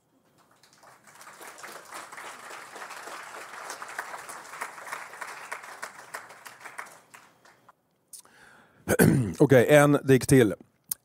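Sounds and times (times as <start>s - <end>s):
audience clapping: 0.3s - 7.8s.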